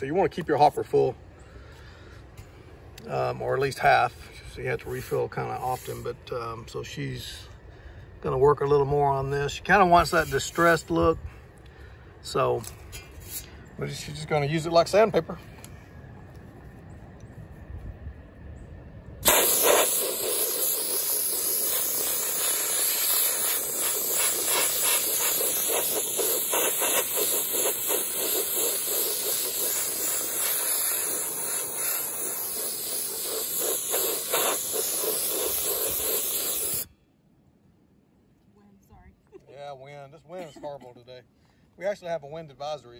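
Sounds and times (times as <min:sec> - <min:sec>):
abrasive blast gun hissing: 0:19.2 - 0:36.9.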